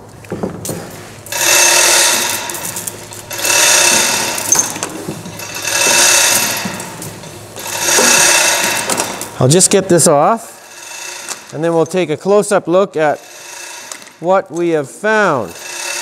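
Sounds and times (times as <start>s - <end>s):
hoist mechanism clicking: 1.3s - 9.4s, 15.5s - 16.0s
hoist chain rattling: 1.3s - 9.7s, 10.6s - 12.1s, 13.0s - 16.0s.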